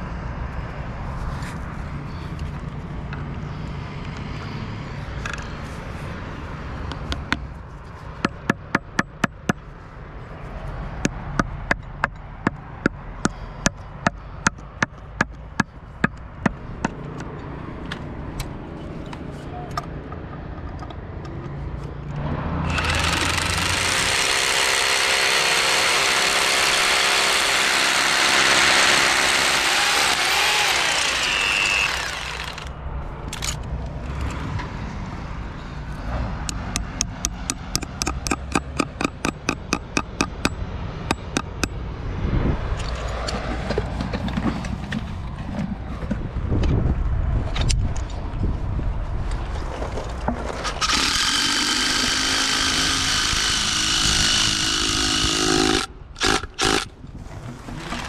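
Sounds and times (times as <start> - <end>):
power tool running: 22.6 - 32.7, 50.8 - 56.9, 57.7 - 58.0
sharp knocks: 36.5 - 41.8.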